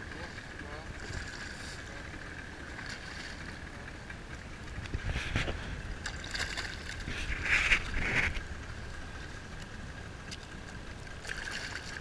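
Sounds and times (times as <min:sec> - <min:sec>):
low rumble of wind and water: 0:00.0 - 0:12.0
fish thrashing and splashing: 0:02.7 - 0:03.7, 0:05.0 - 0:08.6, 0:10.2 - 0:12.0.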